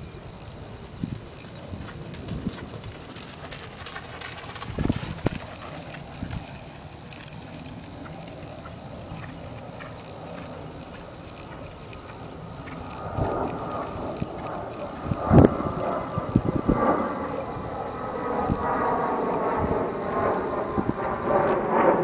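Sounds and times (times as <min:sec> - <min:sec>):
horse hoofbeats on dirt: 0:01.4 - 0:13.4.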